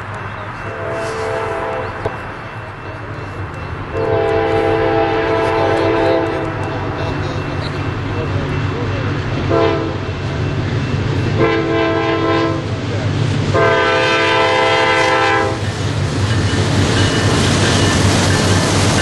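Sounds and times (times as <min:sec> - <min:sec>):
diesel engines rumbling: 0:00.0 - 0:19.0
locomotive air horn blasts: 0:00.7 - 0:02.0, 0:03.9 - 0:06.6, 0:09.5 - 0:10.1, 0:11.4 - 0:12.7, 0:13.5 - 0:15.6.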